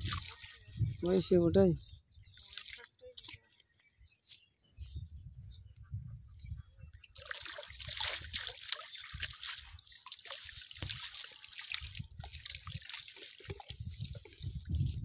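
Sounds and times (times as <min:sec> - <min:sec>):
water splashing off a net: 0:07.2 - 0:14.4.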